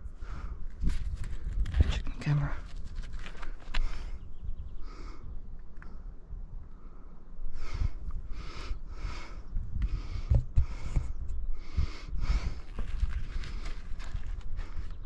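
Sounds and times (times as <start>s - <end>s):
person breathing hard: 0.1s - 0.7s, 6.7s - 15.0s
low thumps and rumble: 9.8s - 11.4s.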